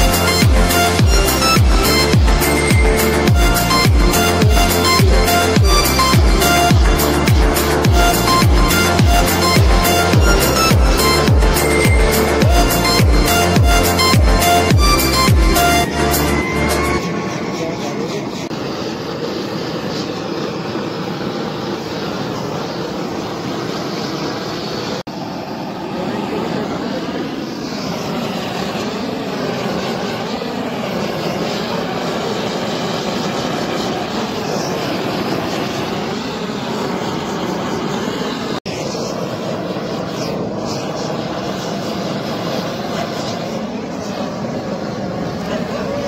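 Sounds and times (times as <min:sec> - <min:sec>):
blowtorch flame roaring: 0:17.4 - 0:46.0.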